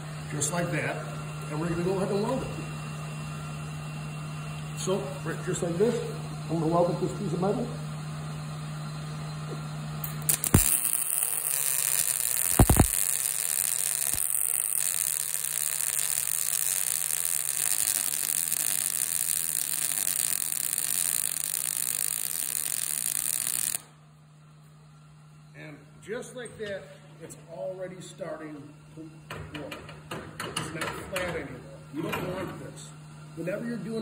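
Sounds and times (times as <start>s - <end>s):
steady hum: 0.0s - 29.2s
welding arc hissing: 10.0s - 23.9s
welding arc pops: 10.0s - 23.9s.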